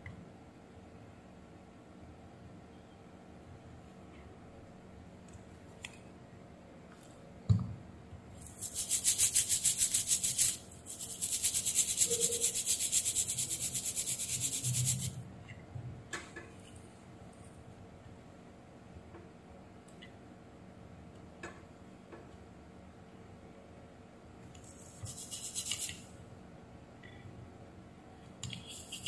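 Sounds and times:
brush scrubbing circuit board: 8.5 - 15.2, 24.6 - 26.0, 28.6 - 29.0.

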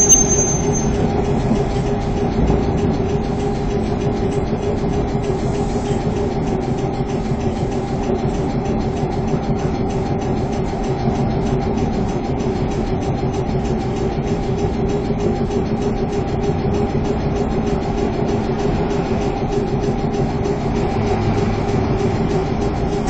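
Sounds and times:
steady equipment tones: 0.0 - 1.6
tram hum: 0.0 - 12.8, 13.6 - 23.0
passing truck engine rumble: 18.3 - 23.0.

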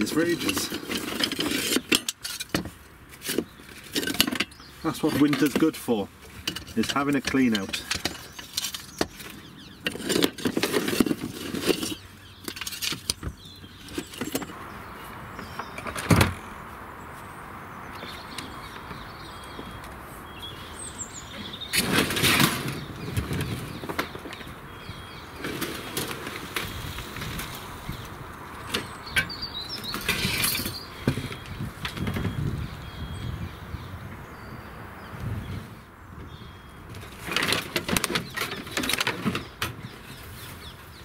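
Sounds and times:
slates clattering: 0.3 - 14.6, 37.0 - 40.1.

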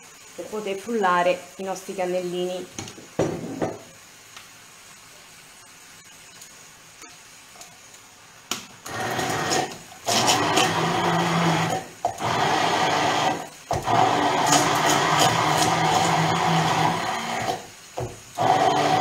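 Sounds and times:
electric blender running: 8.8 - 17.7, 18.3 - 19.0.

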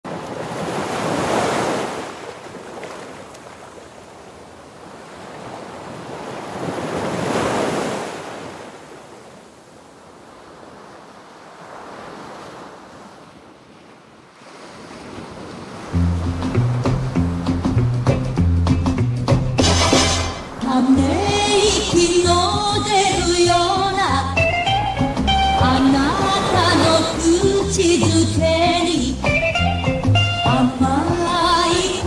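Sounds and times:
ocean waves breaking: 0.0 - 32.0
music with a beat: 16.0 - 20.4, 23.8 - 25.8, 28.0 - 31.9.

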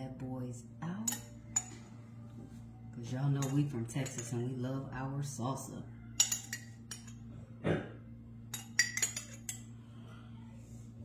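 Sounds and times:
low steady hum: 0.0 - 11.0
metal spoon clinking on glass jar: 3.3 - 4.5, 6.2 - 7.2, 8.5 - 9.6.

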